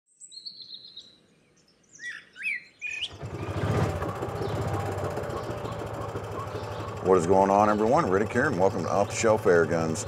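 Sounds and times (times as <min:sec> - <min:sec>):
birds chirping and whistling: 0:00.2 - 0:10.0
utility vehicle engine rumble: 0:03.1 - 0:10.0.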